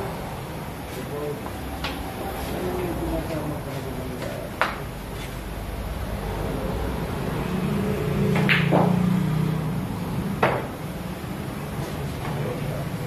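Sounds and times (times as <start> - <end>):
pool balls clicking: 8.4 - 9.0.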